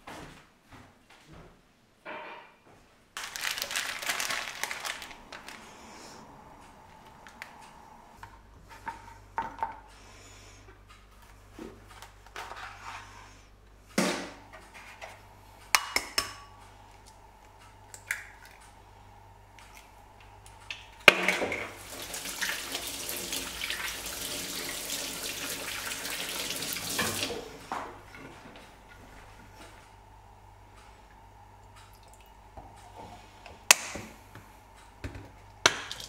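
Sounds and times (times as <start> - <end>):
water running from tap: 21.7 - 27.6.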